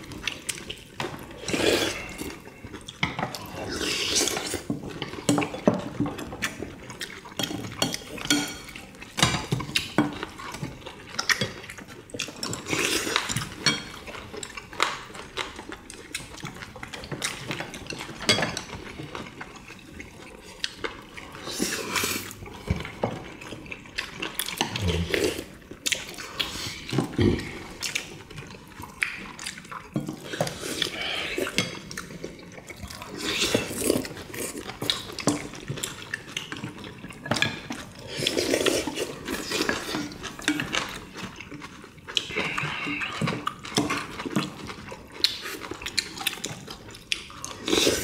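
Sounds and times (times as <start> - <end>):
utensils clinking against bowls: 7.2 - 15.5, 16.4 - 19.8
wet slurping: 47.5 - 48.0.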